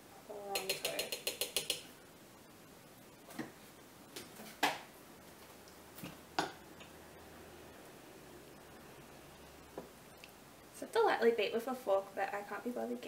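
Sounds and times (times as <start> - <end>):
utensil clicking against pan: 0.5 - 1.9.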